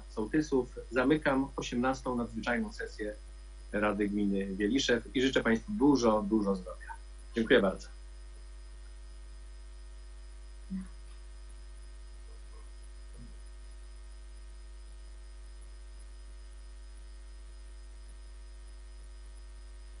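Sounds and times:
low electrical mains hum: 0.0 - 20.0
faint blips: 10.6 - 11.3.

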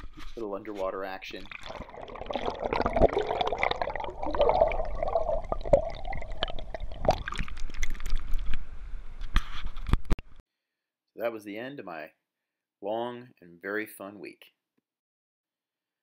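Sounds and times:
water splashing: 1.3 - 8.5
muffled underwater stream rush: 1.4 - 8.9.

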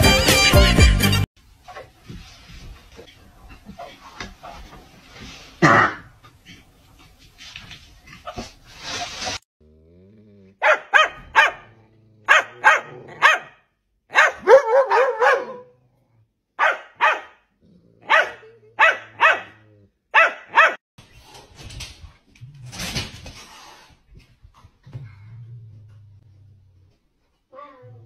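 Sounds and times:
dog growling: 9.6 - 10.6, 11.6 - 13.2, 19.5 - 20.1
dog barking: 10.6 - 11.7, 12.3 - 15.8, 16.6 - 17.4, 18.0 - 20.8.

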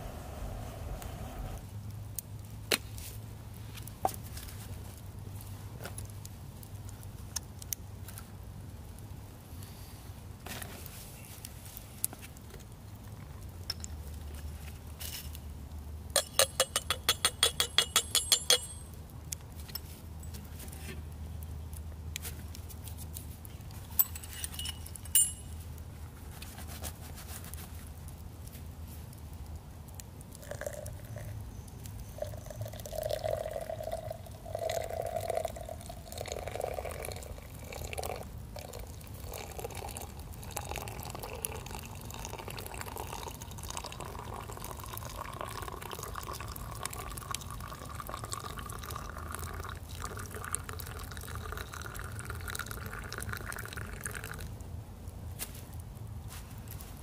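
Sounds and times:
liquid pouring into container: 30.4 - 31.3, 32.2 - 54.5.

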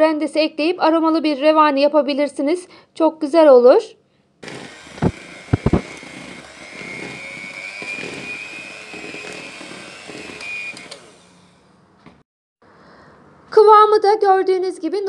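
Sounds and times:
electric mixer whining: 4.4 - 11.6
sharp knocks: 5.0 - 6.0.

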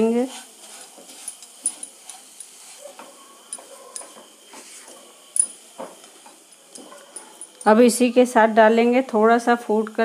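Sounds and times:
spatula scraping a pan: 0.0 - 3.2
faint sizzle: 0.0 - 10.0.

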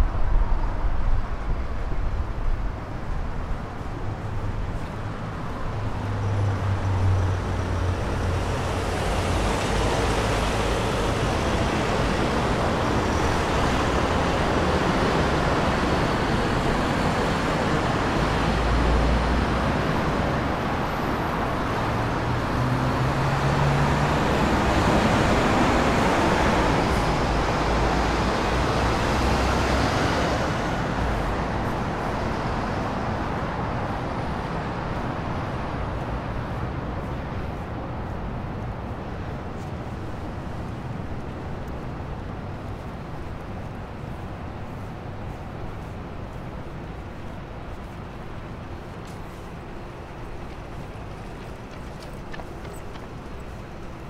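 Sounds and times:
road traffic passing: 0.0 - 54.0.

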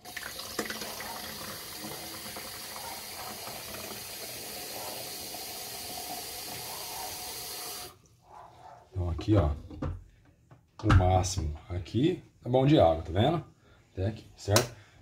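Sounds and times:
tap water filling plastic tank: 0.0 - 8.0.

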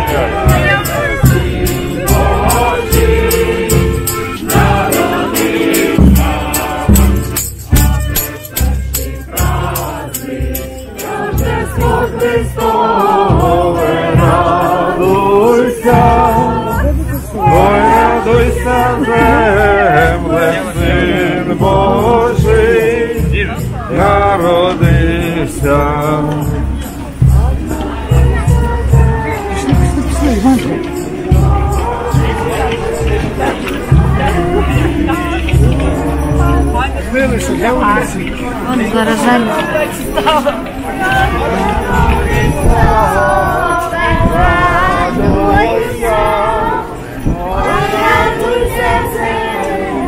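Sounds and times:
large drum beating: 0.0 - 10.5, 11.3 - 36.9
group singing carol: 0.0 - 50.0.

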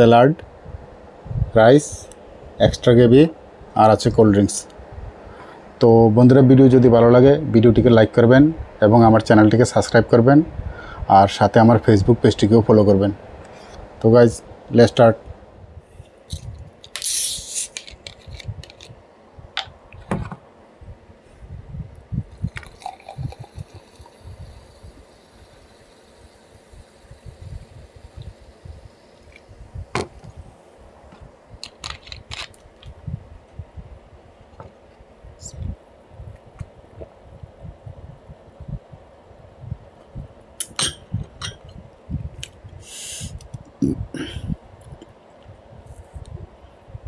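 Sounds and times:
fizzing hiss: 16.9 - 17.8, 22.5 - 29.6, 42.8 - 43.4
gulps of drink swallowed: 22.4 - 24.1
soda pouring into glass: 22.4 - 29.3
glass mug clinking: 22.6 - 24.1, 40.6 - 41.7.

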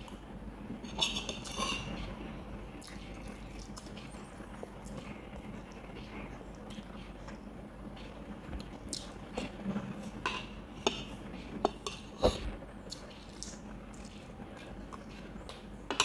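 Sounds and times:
cutlery clinking against dishes: 0.9 - 2.0.

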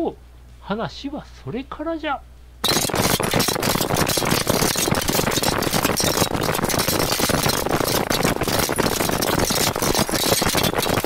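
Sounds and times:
many running footsteps: 2.6 - 11.0
rattling armour and gear: 2.6 - 11.0.

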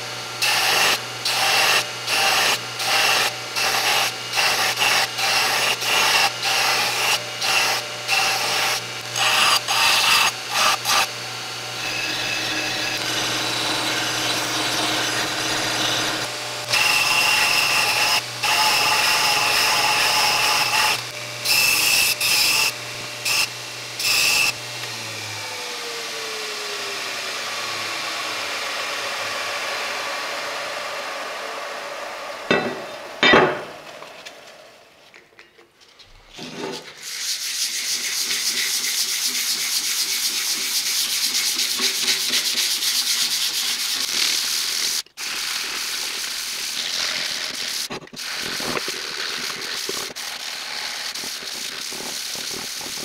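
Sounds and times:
belt grinder grinding steel: 0.4 - 31.0, 46.7 - 53.0
motor winding down: 6.7 - 32.5
motor hum: 6.7 - 34.9
sandpaper rubbing on steel: 37.0 - 45.0.

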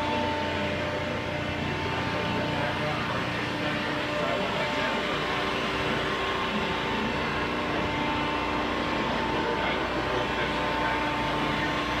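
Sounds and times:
machine hum with tones: 0.0 - 12.0.

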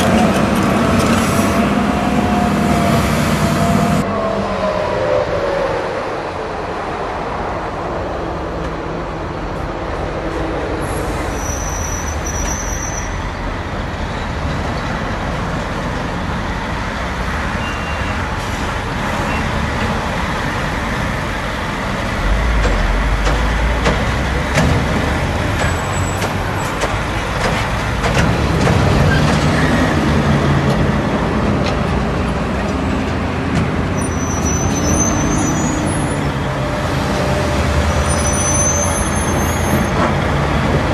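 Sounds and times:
diesel trucks driving: 0.0 - 40.9
brief high squeals: 11.0 - 13.2, 34.0 - 36.0, 38.1 - 39.9.

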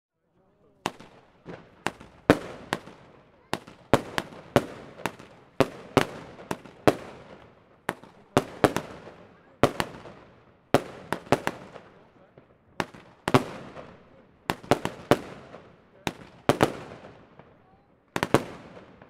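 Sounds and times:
fireworks bangs: 0.8 - 19.0.

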